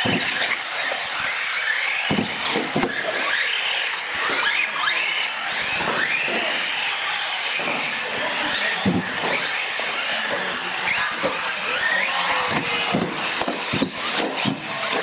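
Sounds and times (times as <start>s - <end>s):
model car electric motors whining: 0.0s - 15.0s
toy cars bumping: 0.0s - 15.0s.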